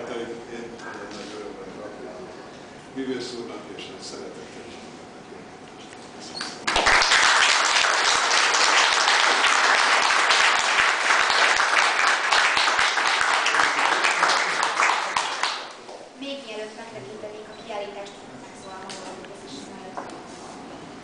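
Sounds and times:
audience applauding: 6.6s - 15.9s.

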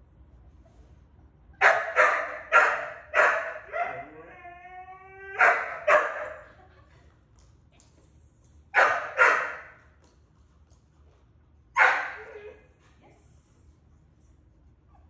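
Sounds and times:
dog barking: 1.6s - 4.1s, 5.4s - 6.4s, 8.8s - 9.7s, 11.8s - 12.3s.

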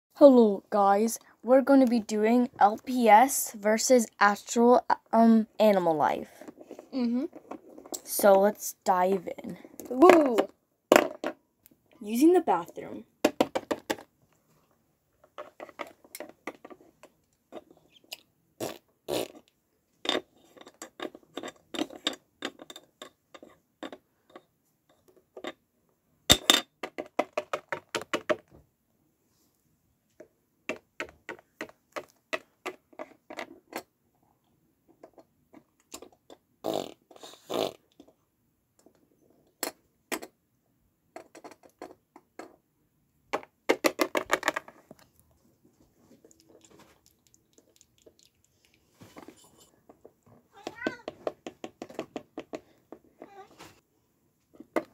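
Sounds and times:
mouth-blown fart noises: 18.6s - 19.5s, 36.6s - 37.9s.

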